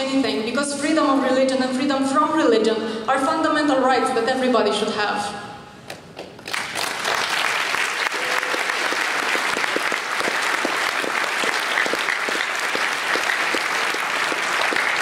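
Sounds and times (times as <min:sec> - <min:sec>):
large audience applauding: 0:06.3 - 0:15.0.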